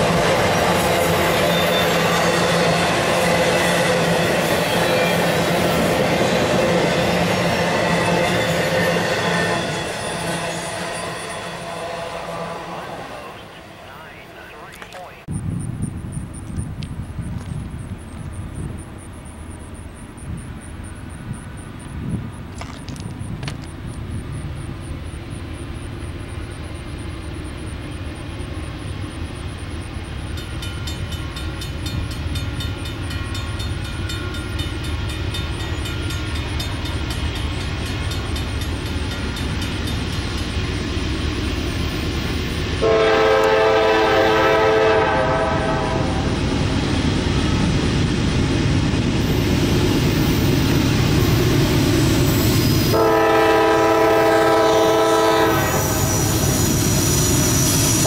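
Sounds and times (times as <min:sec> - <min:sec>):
diesel locomotive engine rumble: 0:00.0 - 0:58.0
train rail noise: 0:00.0 - 0:58.0
train air horn blast: 0:09.2 - 0:14.5, 0:42.8 - 0:46.3, 0:52.9 - 0:56.3.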